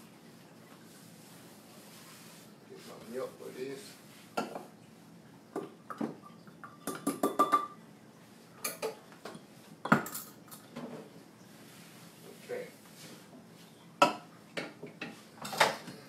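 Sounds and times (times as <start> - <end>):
dishes and utensils clinking: 5.6 - 7.8, 8.6 - 11.0, 14.0 - 16.0.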